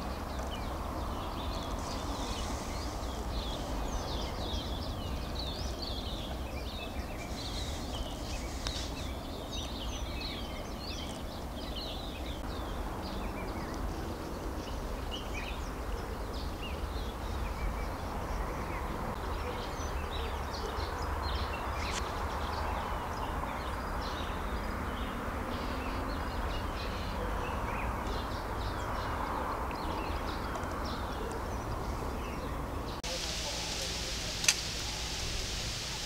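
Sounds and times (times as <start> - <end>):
bird chirps and calls: 0.0 - 36.0
low rumble and hiss: 33.0 - 36.0.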